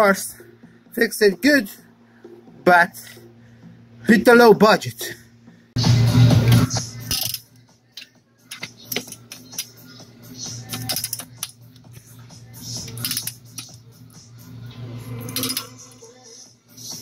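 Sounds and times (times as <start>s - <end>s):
socket ratchet clicking: 7.0s - 9.8s, 10.6s - 12.0s, 12.8s - 13.8s.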